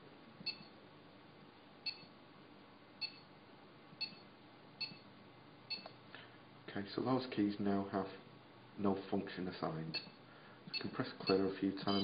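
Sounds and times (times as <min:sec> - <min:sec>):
short high electronic beeps: 0:10.8 - 0:12.0.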